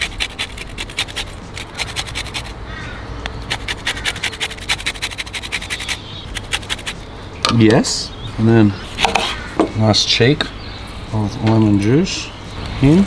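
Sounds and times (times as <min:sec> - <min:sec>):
lemon scraped on a grater: 0:00.0 - 0:02.6, 0:03.5 - 0:07.0.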